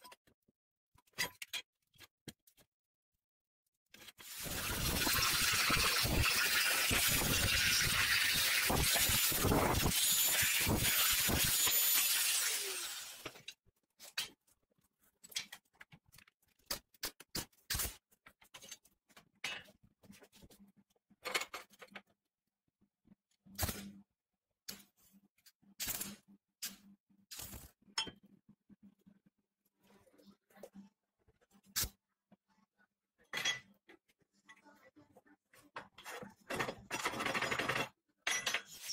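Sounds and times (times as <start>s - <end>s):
welder crackling bursts: 4.2s - 13.2s
angle grinder cutting steel: 4.3s - 13.3s.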